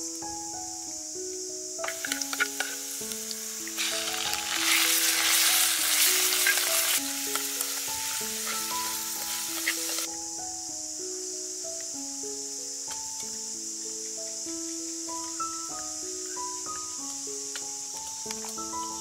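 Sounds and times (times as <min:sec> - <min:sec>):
soft background music: 0:00.0 - 0:19.0
food sizzling in a frying pan: 0:01.8 - 0:10.2.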